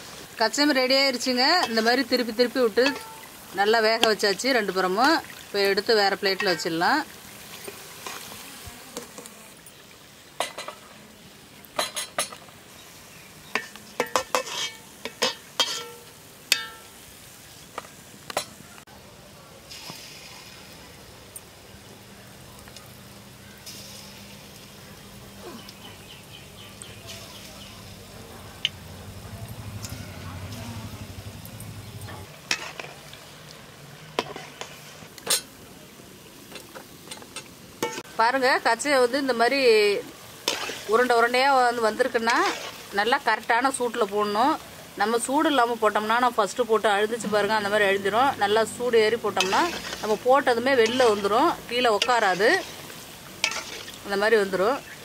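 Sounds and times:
oil sizzling: 0:00.0 - 0:19.0, 0:19.6 - 0:55.0
metal ladle clinking against pot: 0:13.6 - 0:16.8.

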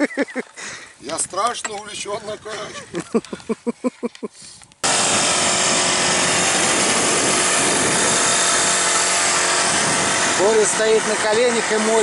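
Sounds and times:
person laughing: 0:00.0 - 0:00.8, 0:02.4 - 0:04.4
electric air pump humming: 0:04.8 - 0:12.0.

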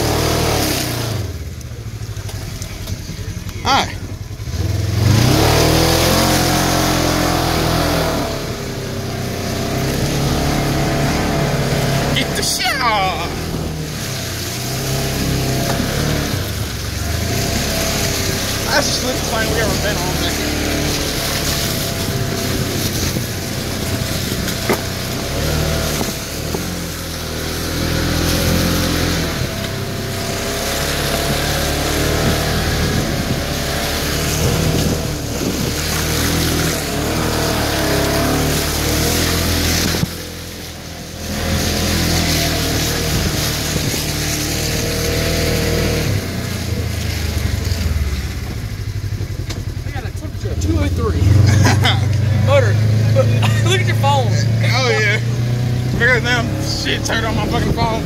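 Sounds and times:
tyres splashing through mud: 0:00.0 - 0:58.0
vehicle engine revving: 0:00.0 - 0:58.0.

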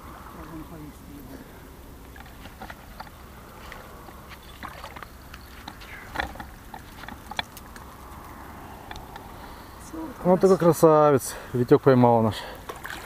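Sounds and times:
low steady rumble: 0:00.0 - 0:11.6
light water splashes: 0:01.4 - 0:09.2, 0:12.3 - 0:13.0.

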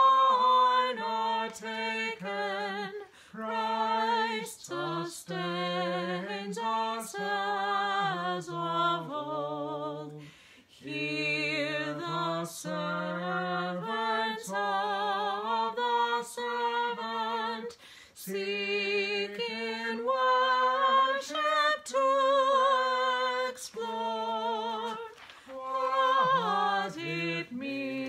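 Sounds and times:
man singing a hymn solo: 0:23.9 - 0:28.0.

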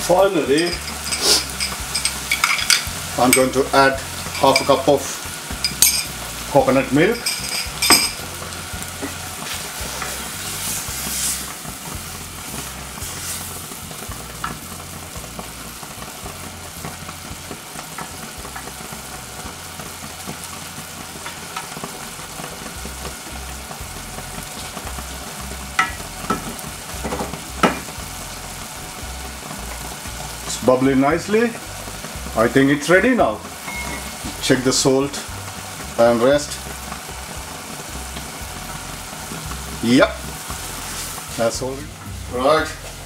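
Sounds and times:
curry sizzling and bubbling: 0:00.0 - 0:43.0
wooden spoon knocking pan: 0:25.8 - 0:28.0.

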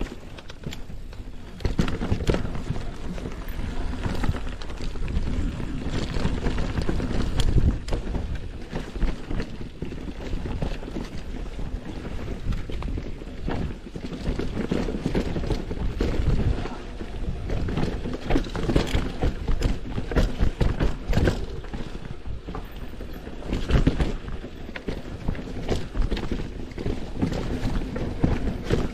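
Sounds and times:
tyres rumbling on dirt trail: 0:00.0 - 0:28.9.

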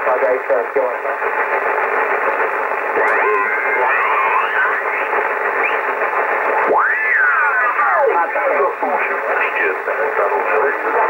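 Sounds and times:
radio static hiss: 0:00.0 - 0:11.0
mistuned sideband voices: 0:02.8 - 0:05.9
radio whistles sliding in pitch: 0:05.6 - 0:06.0.

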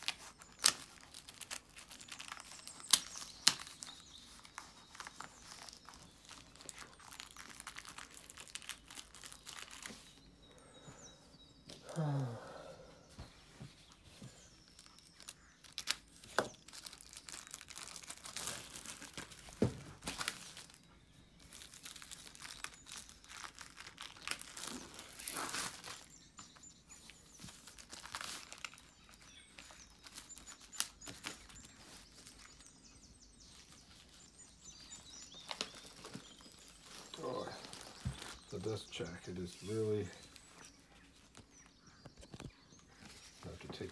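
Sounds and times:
plastic shrink-wrap crinkling: 0:00.0 - 0:10.3, 0:13.8 - 0:43.9.

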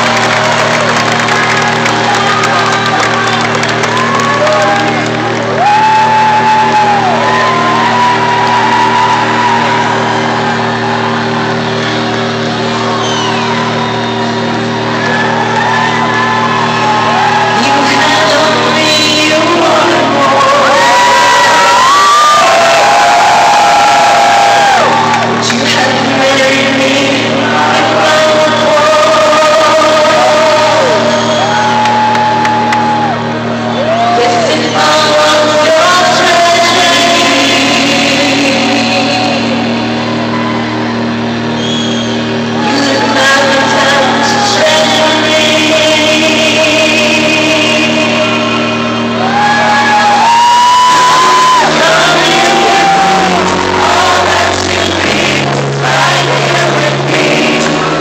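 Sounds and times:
audience shouts and whoops: 0:00.0 - 0:18.2, 0:20.4 - 0:25.5, 0:30.1 - 0:34.6, 0:38.4 - 0:45.0, 0:48.3 - 0:54.3
piano chords: 0:00.0 - 0:58.0.

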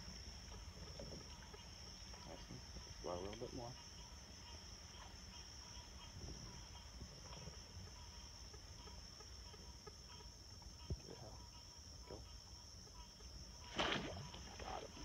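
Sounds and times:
crickets trilling: 0:00.0 - 0:15.0.

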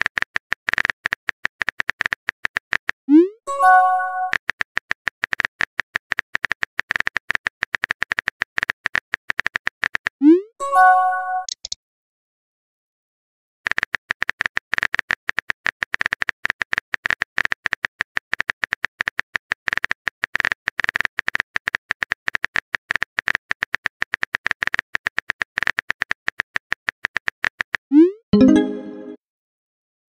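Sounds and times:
keyboard click effects: 0:03.1 - 0:04.4, 0:09.4 - 0:11.8, 0:27.9 - 0:29.2
message sent sound: 0:03.1 - 0:04.4, 0:10.3 - 0:11.6, 0:27.9 - 0:29.2.

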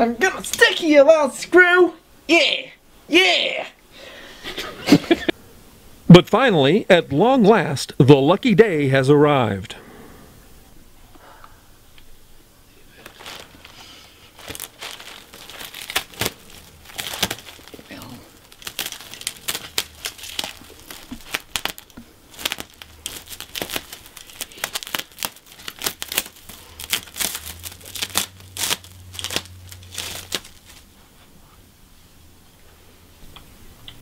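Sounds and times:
crinkling and tearing crackles: 0:12.8 - 0:31.2.

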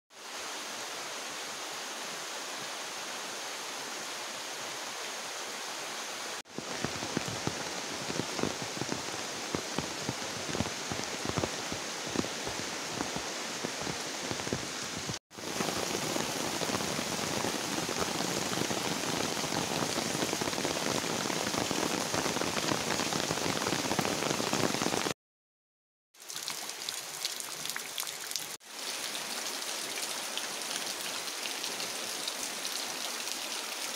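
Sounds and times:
heavy rain splashing: 0:06.4 - 0:25.2.

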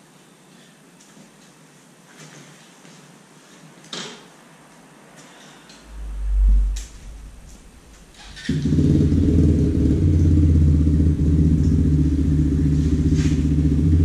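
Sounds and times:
motorcycle engine running: 0:08.1 - 0:14.0.

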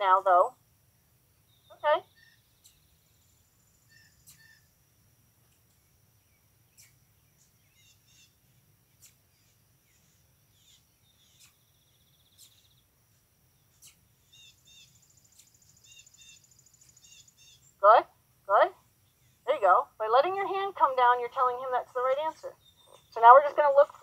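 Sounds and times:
faint bird chirps and trills: 0:00.0 - 0:24.0
thin high hiss: 0:02.2 - 0:04.8, 0:06.6 - 0:19.4.

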